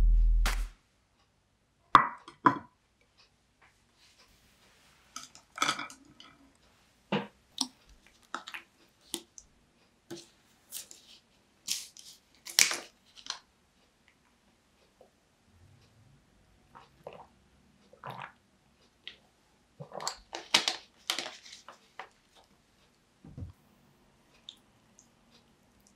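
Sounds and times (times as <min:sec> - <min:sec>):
sharp knock: 0:00.0 - 0:00.7.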